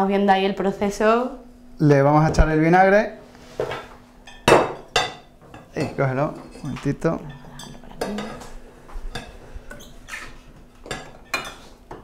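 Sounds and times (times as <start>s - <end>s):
utensils clinking on glass bowl: 10.8s - 12.0s.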